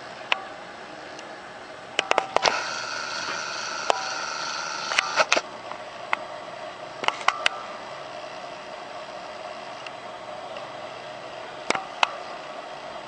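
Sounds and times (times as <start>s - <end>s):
high whine: 0.0s - 13.0s
steady hum: 0.0s - 13.0s
tablet handling clicks: 2.0s - 4.2s, 4.8s - 5.4s.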